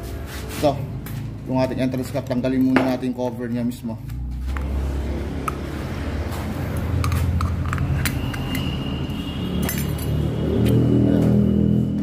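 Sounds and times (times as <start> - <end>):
screwdriver clinking against metal: 9.6 - 10.2.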